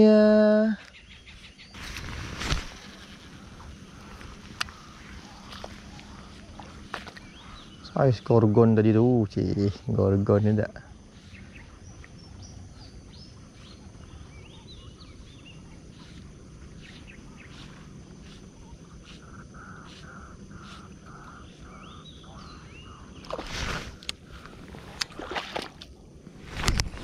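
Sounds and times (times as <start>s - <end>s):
birds chirping: 0.0s - 25.2s
open-air background noise: 0.0s - 27.0s
faint ticks: 2.4s - 7.5s.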